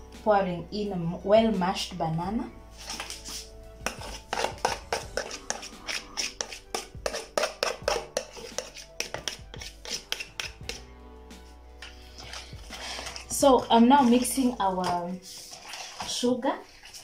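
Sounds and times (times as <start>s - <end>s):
background music: 0.0s - 17.0s
knocks and scrapes in a bowl: 2.9s - 10.9s, 11.8s - 17.0s.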